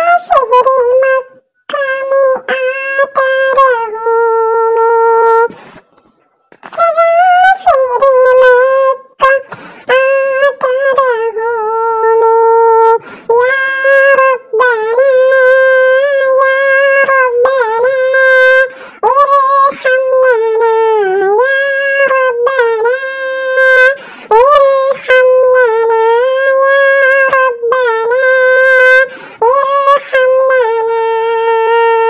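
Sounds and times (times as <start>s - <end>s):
person singing unaccompanied: 0.0s - 32.0s.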